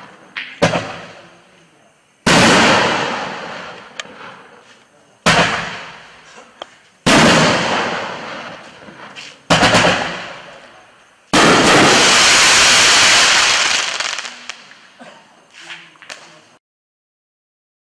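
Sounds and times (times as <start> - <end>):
firework bangs: 0.0 - 1.2, 2.2 - 4.6, 5.2 - 6.3, 7.0 - 15.0
firework crackling: 2.3 - 4.6, 7.0 - 15.0.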